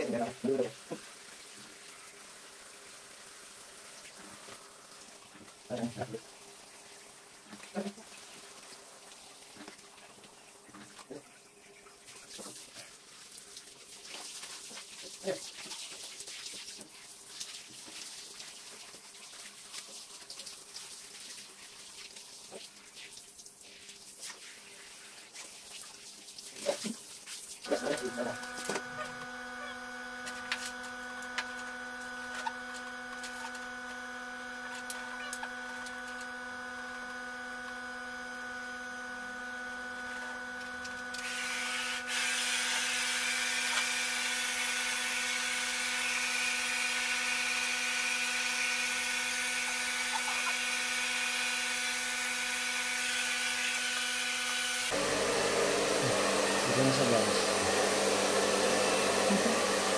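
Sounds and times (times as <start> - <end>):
hair dryer blowing air: 27.7 - 59.9
motor hum: 27.7 - 59.9.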